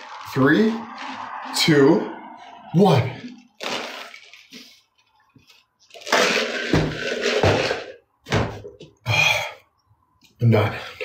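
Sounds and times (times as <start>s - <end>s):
loud gurgling rush: 0.0s - 4.4s.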